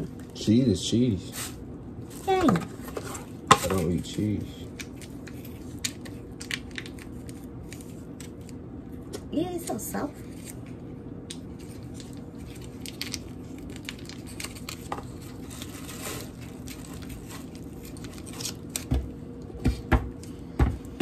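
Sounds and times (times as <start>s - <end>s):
foil wrapper crinkling: 4.6s - 8.6s, 11.5s - 19.0s.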